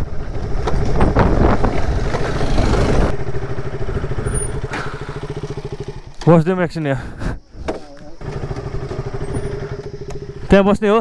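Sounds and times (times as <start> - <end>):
wind and tyre noise: 0.0 - 6.5
motorcycle engine running: 0.0 - 7.5, 8.2 - 11.0.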